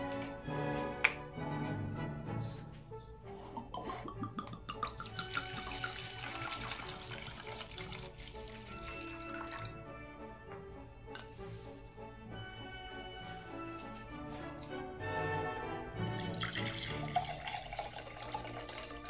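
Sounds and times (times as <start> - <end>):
background music: 0.0 - 19.0
liquid pouring into glass cup: 3.6 - 9.8, 16.0 - 19.0.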